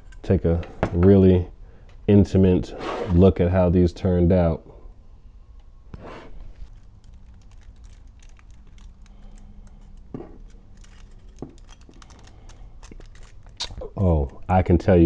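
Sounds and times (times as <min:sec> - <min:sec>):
faint steady hum: 0:00.0 - 0:15.0
clicks and crinkling of foil: 0:06.5 - 0:15.0.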